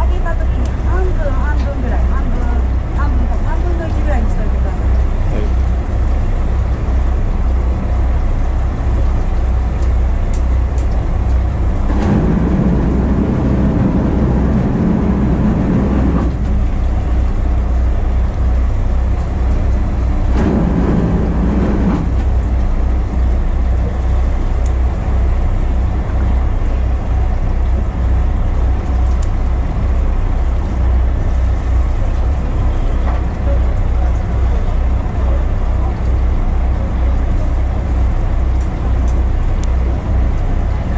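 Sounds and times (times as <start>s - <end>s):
boat engine rumble: 0.0s - 40.9s
higher engine drone: 0.0s - 40.9s.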